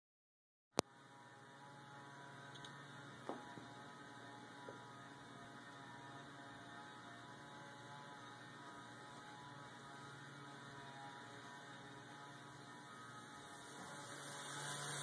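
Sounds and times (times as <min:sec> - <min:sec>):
faint electric snaps: 0:02.5 - 0:02.8.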